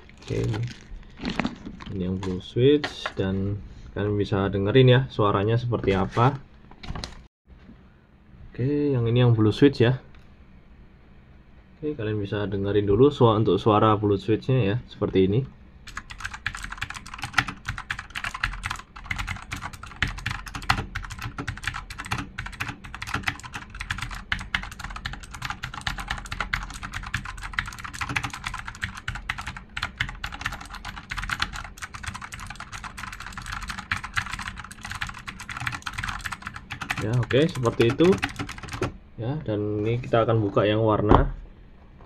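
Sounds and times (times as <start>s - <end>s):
clicky mechanical keyboard typing: 15.9s - 38.9s.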